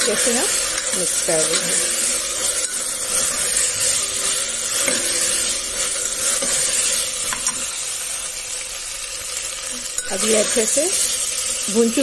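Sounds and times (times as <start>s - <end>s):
steel ladle stirring and scraping: 0.0s - 8.4s
peas sizzling in oil: 0.0s - 12.0s.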